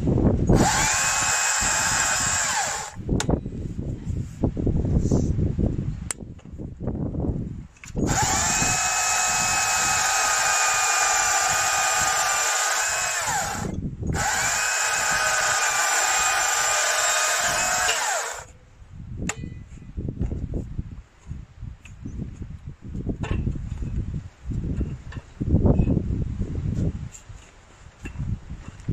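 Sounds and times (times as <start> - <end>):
battery chainsaw whining: 0.5 - 3.0, 8.0 - 18.5.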